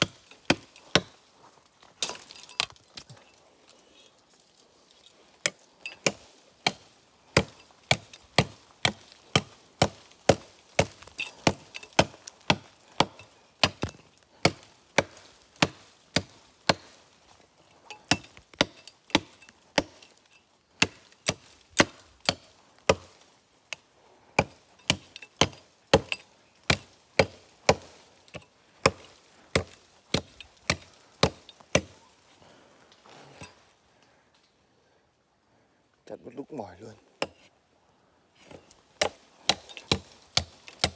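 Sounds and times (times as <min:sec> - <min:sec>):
blade chopping wood: 0:00.0 - 0:01.2, 0:05.4 - 0:17.0, 0:18.0 - 0:20.1, 0:20.8 - 0:23.8, 0:24.4 - 0:32.0, 0:38.4 - 0:40.9.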